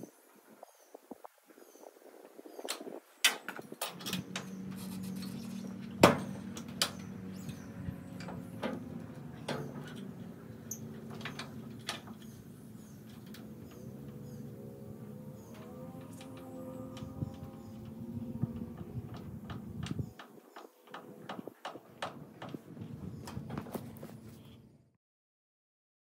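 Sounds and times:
metal clicks and clanks: 2.7s - 14.2s
hydraulic pump humming: 3.8s - 24.5s.

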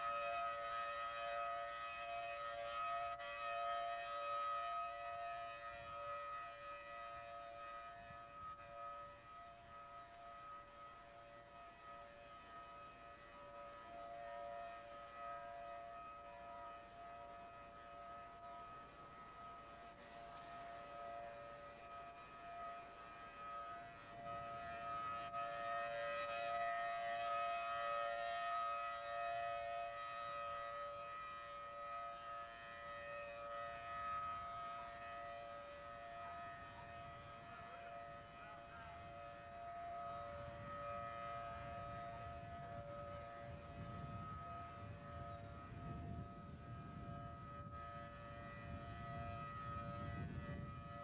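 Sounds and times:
tornado warning siren: 0.0s - 51.0s.

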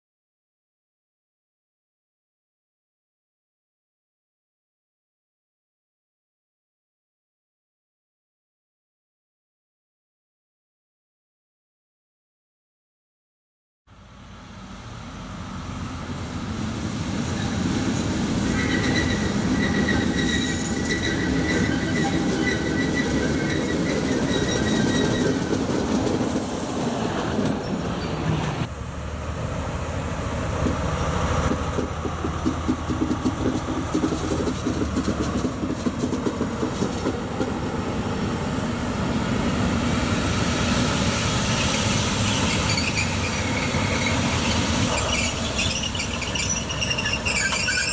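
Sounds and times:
locomotive engine rumbling: 13.9s - 47.9s
train wheels squealing: 17.3s - 25.6s, 27.6s - 28.5s, 41.5s - 47.9s
wheels clicking over rails: 30.6s - 38.1s, 42.4s - 47.9s.

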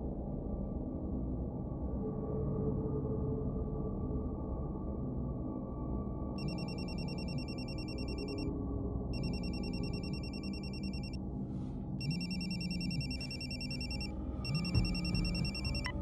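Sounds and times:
low steady drone: 0.0s - 16.0s
telephone ringing: 6.4s - 8.4s, 9.2s - 11.2s, 12.0s - 16.0s.

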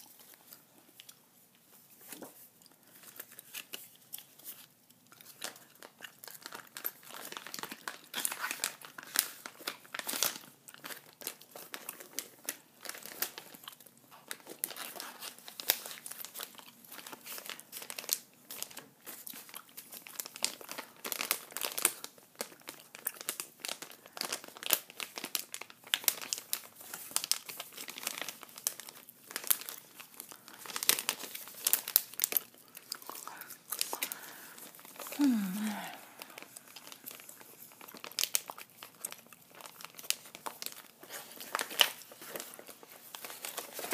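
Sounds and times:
paper and plastic packaging crinkling: 0.0s - 43.9s.

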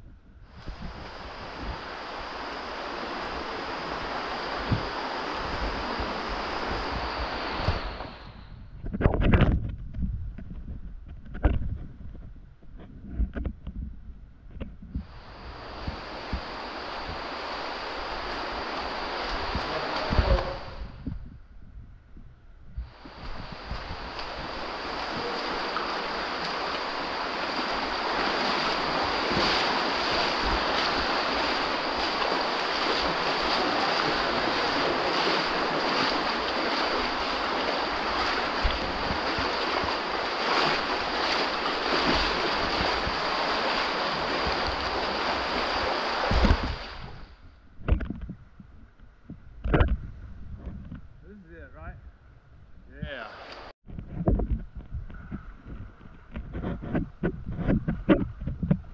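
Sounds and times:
floodwater rushing: 0.5s - 8.4s, 15.0s - 21.0s, 22.8s - 47.2s, 53.0s - 53.7s.

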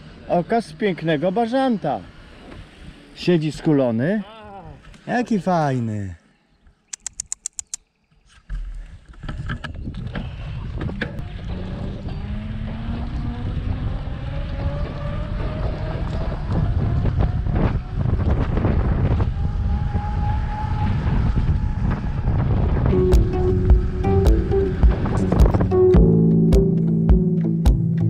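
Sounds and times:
road and tyre noise: 0.0s - 4.2s, 10.8s - 26.1s
wind buffeting microphone: 9.3s - 25.8s.

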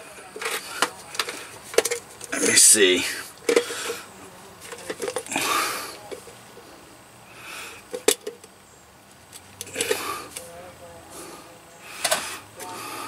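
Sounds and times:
heavy breath: 5.3s - 6.1s, 7.2s - 7.9s, 9.7s - 10.4s, 11.0s - 13.0s.

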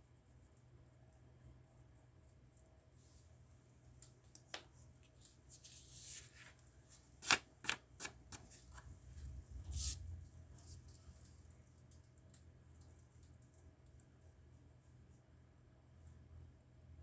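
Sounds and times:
paper rustling on drawing board: 4.5s - 10.0s.

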